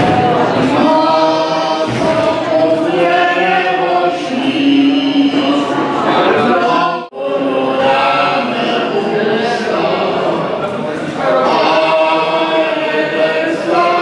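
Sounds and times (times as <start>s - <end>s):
group of voices chanting: 0.0s - 14.0s.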